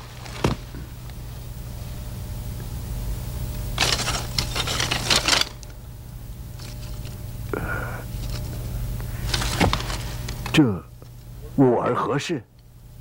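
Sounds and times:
steady low hum: 0.0 - 13.0
wooden scroll clattering: 3.8 - 5.7, 9.2 - 10.6.

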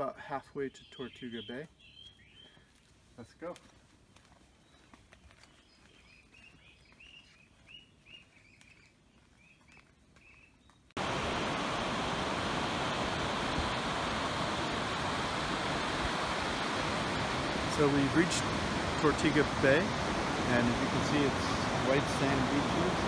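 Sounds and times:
small bird chirps: 0.8 - 2.6
ocean surf breaking on beach: 11.0 - 23.0.

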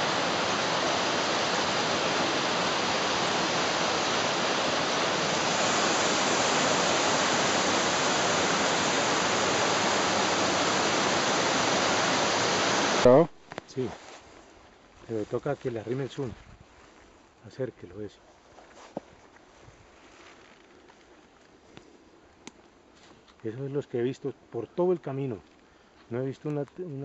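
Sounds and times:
waterfall rushing: 0.0 - 13.1.

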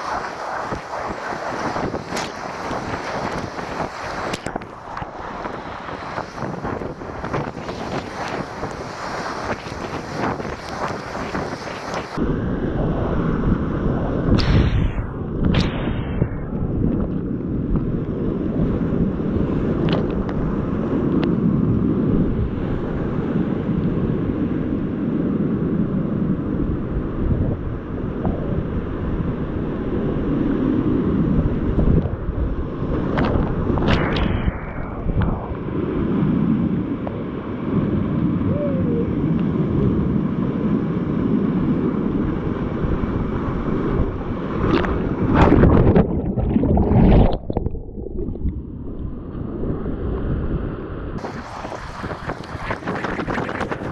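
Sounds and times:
water splash: 44.5 - 49.2, 51.2 - 53.9.

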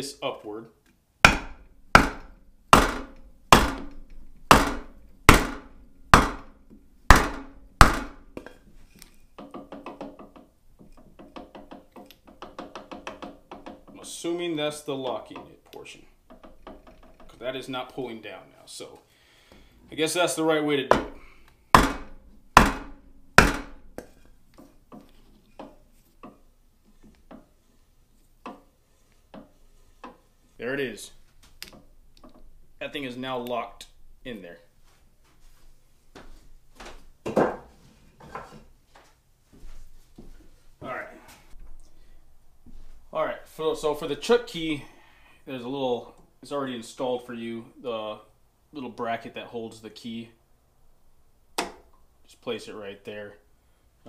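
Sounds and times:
hammer knocking wood block: 1.2 - 6.5, 7.1 - 8.6, 9.4 - 14.0, 20.9 - 21.2, 21.8 - 24.1.

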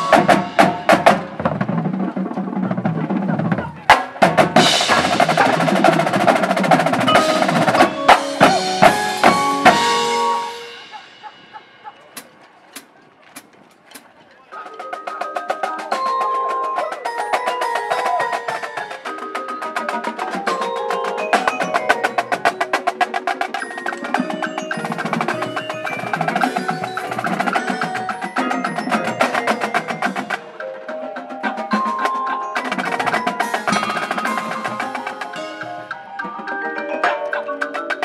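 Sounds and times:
marimba and vibraphone notes: 0.0 - 1.7, 4.3 - 12.2, 14.6 - 38.0
rapid snare drum strokes: 0.0 - 14.1.

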